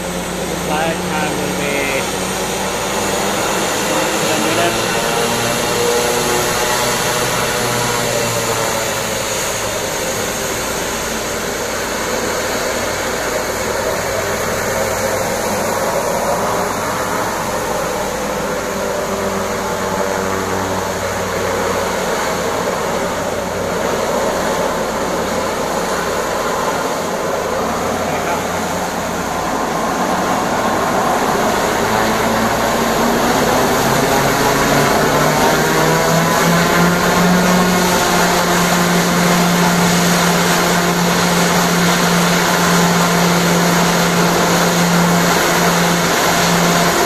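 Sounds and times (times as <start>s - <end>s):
turboprop engines and propellers: 0.0s - 47.0s.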